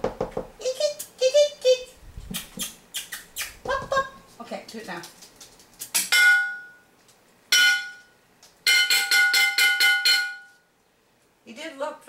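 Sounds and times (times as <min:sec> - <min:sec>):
metal object clanging: 0:07.5 - 0:08.1, 0:08.7 - 0:10.6.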